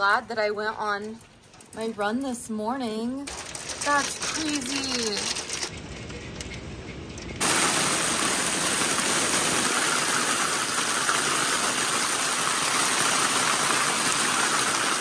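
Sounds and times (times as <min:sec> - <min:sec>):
hail and heavy rain: 0:03.3 - 0:05.7, 0:07.4 - 0:15.0.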